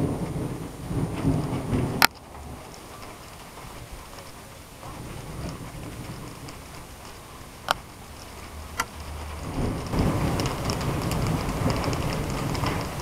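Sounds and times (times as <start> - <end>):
rain falling: 0.0 - 13.0.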